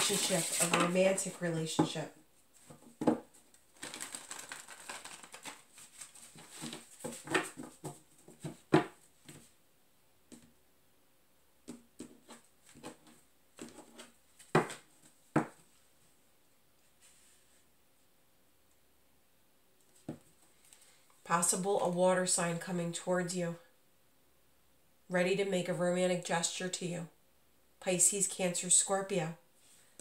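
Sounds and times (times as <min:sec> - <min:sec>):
cards being shuffled: 0:00.0 - 0:01.0, 0:03.8 - 0:07.8.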